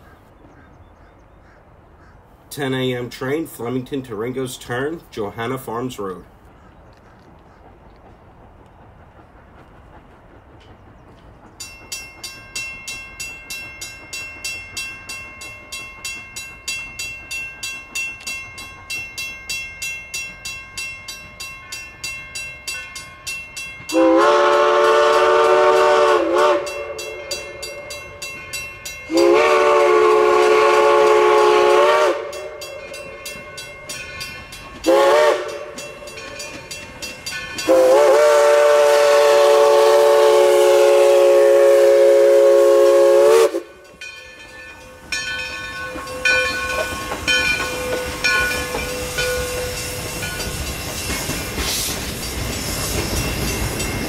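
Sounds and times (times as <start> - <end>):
crossing bell dinging: 11.6 - 38.4, 43.5 - 54.0
steam locomotive whistle: 23.9 - 28.3, 29.1 - 33.4, 34.8 - 36.7, 37.3 - 44.1, 44.7 - 50.6.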